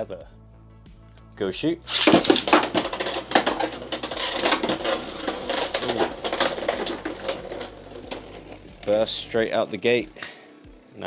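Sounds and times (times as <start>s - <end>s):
spinning tops clashing: 1.9s - 9.2s
top bursting apart: 1.9s - 9.2s.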